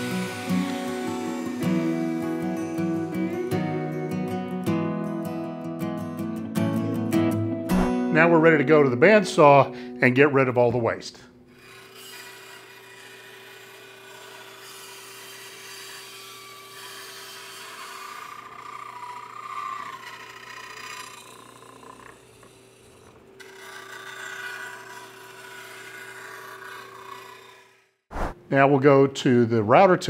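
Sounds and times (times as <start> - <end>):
saw blade cutting wood: 0.0 - 4.2, 11.5 - 28.4
bandsaw motor hum: 0.0 - 4.6, 11.5 - 28.0.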